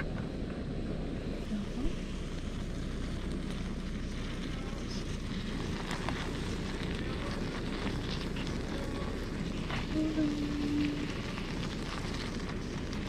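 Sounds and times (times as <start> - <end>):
gas stove roaring: 0.0 - 13.0.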